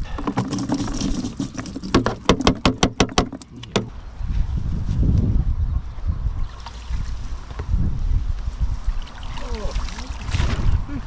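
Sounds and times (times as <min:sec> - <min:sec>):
wind rumble on microphone: 0:03.6 - 0:11.0.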